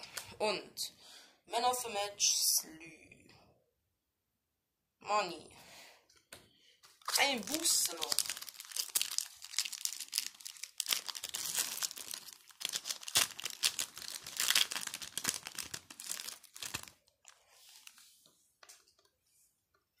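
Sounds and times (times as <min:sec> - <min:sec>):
foil pack tearing and crinkling: 0:07.1 - 0:17.4.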